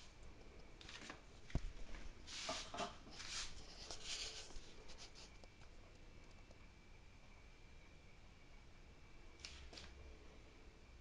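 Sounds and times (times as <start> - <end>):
soft rustling handling noise: 0.7 - 5.8
short scrapes: 2.3 - 5.4.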